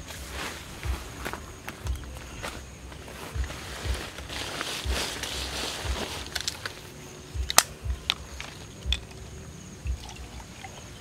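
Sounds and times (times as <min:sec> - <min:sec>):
plastic bottle clicks and crackles: 0:07.4 - 0:09.2.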